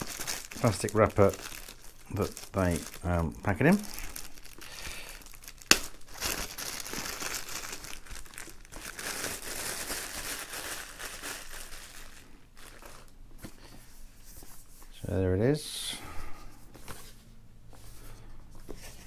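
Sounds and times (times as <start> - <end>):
plastic wrap tearing and crinkling: 0.0 - 13.2
sharp plastic crack: 5.6 - 6.0.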